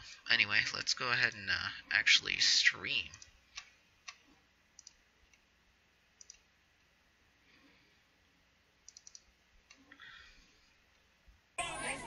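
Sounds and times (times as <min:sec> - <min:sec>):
faint computer mouse clicks: 0:04.8 - 0:05.4, 0:06.2 - 0:06.4, 0:08.9 - 0:09.8.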